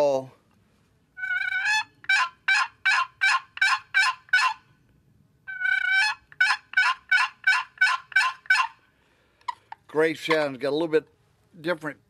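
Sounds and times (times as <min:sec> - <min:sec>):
turkey box call yelping: 0:01.2 - 0:04.7, 0:05.5 - 0:08.8.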